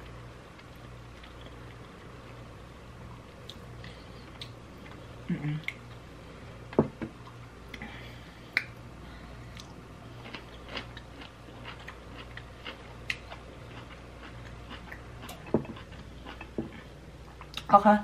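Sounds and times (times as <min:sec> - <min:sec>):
faint low hum: 0:00.0 - 0:18.0
close chewing and mouth clicks: 0:09.5 - 0:17.7.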